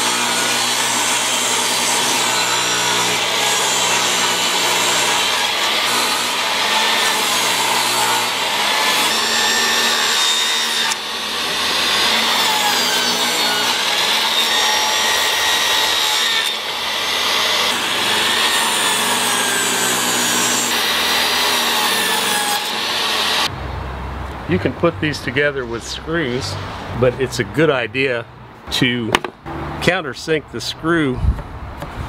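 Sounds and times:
table saw cutting wood: 0:00.0 - 0:23.5.

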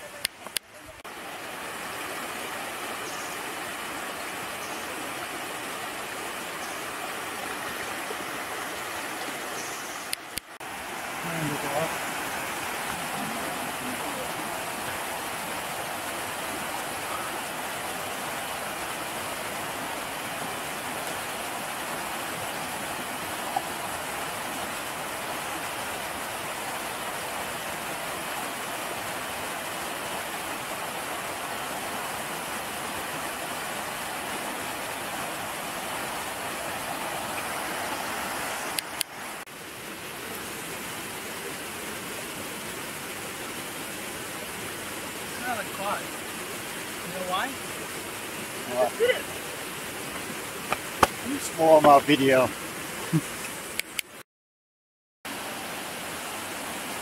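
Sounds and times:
flowing water rushing: 0:00.0 - 0:54.2, 0:55.3 - 0:57.0.

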